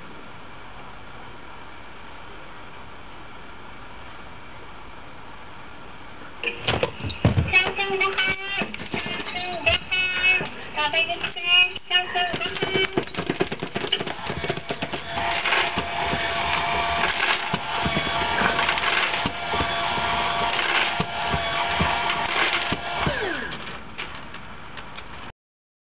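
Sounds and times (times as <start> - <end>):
pet feeder motor humming: 7.2 - 24.1
clicking and clattering: 12.2 - 25.1.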